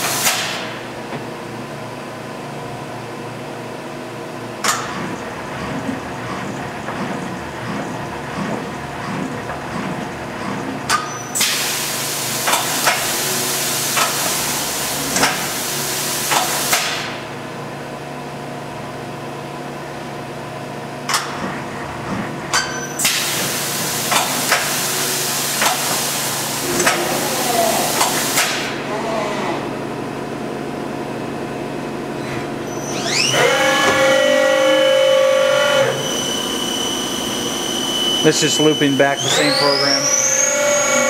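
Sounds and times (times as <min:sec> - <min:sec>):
machine motor hum: 0:00.0 - 0:41.0
hiss: 0:11.4 - 0:17.1, 0:23.0 - 0:26.6, 0:27.2 - 0:28.7.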